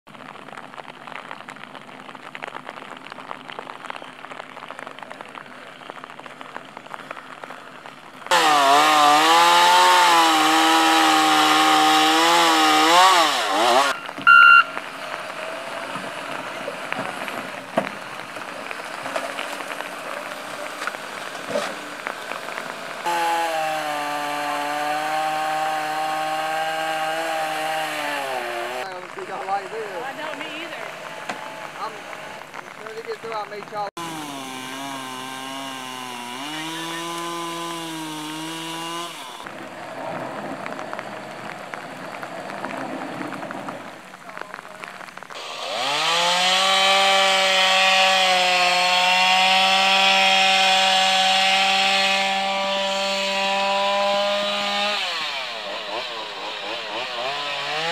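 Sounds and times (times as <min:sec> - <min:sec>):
chainsaw cutting wood: 0:08.3 - 0:32.6, 0:34.0 - 0:39.6, 0:43.8 - 0:57.9
short high beep: 0:14.0 - 0:14.7.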